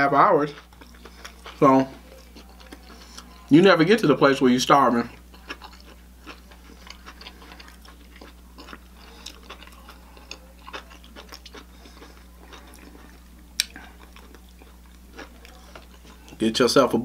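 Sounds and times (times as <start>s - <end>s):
low steady hum: 0.0s - 17.0s
person chewing food: 0.4s - 3.6s, 4.8s - 16.4s
wet mouth clicks: 13.6s - 13.8s.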